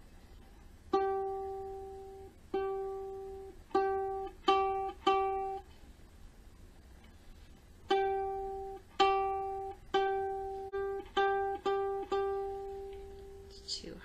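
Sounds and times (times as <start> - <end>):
ukulele string plucked: 0.9 - 5.6, 7.9 - 13.6.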